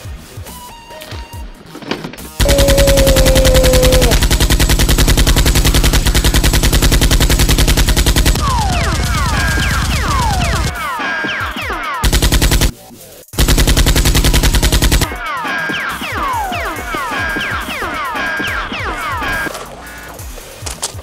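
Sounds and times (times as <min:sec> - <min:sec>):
automatic gunfire: 0:02.4 - 0:10.8, 0:12.0 - 0:12.8, 0:13.4 - 0:15.2.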